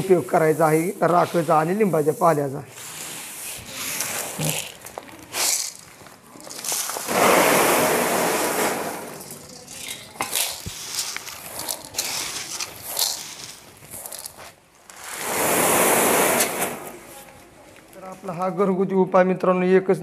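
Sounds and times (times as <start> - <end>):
dry chickpeas rustling and clicking: 3.7 - 7.2, 9.2 - 15.2
loud rushing noise: 7.1 - 9.2.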